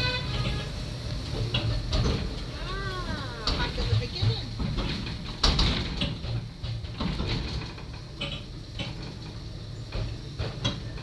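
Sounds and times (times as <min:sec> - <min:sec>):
railway carriage rumble: 0:00.0 - 0:11.0
wheels clicking and rattling: 0:00.0 - 0:11.0.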